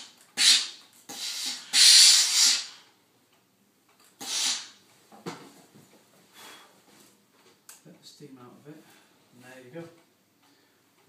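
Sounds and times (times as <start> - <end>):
steam iron hissing: 4.2 - 4.7.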